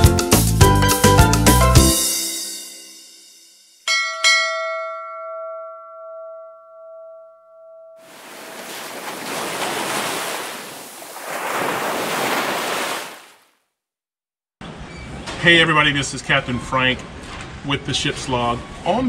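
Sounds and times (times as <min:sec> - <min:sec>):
bell-like chime: 0:02.1 - 0:08.0
ocean waves breaking: 0:08.0 - 0:13.5.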